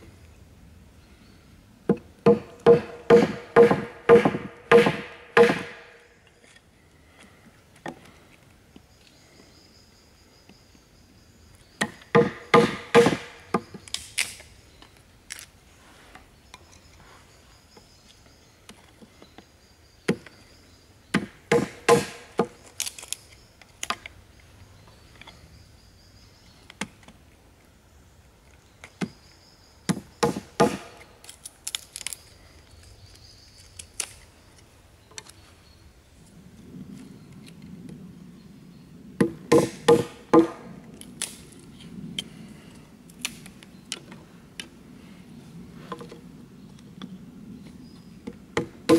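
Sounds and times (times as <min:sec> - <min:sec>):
hatchet chopping wood: 0:01.9 - 0:05.9, 0:11.8 - 0:14.3, 0:21.1 - 0:22.6, 0:29.9 - 0:31.0, 0:39.2 - 0:40.7, 0:48.6 - 0:48.9.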